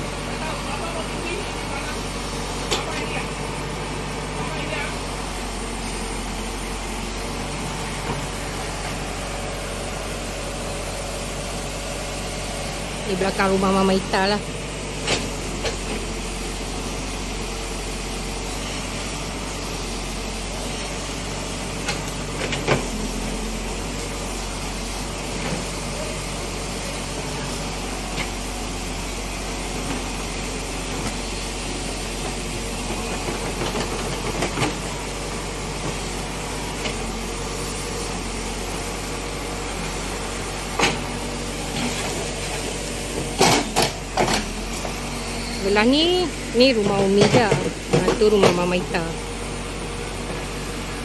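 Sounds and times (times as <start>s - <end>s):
diesel engine running: 0.0s - 51.0s
sharp knocks of backhoe digging: 43.2s - 44.6s.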